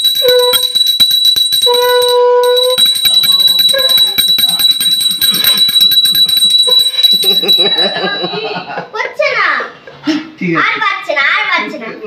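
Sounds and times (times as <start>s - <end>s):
hand bell ringing rapidly: 0.0s - 8.8s
steady held tone: 0.0s - 9.0s.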